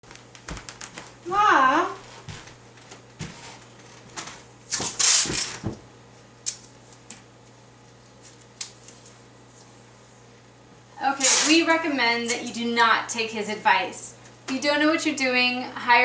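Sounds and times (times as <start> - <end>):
tape tearing from a roll: 4.7 - 5.6, 11.2 - 11.7.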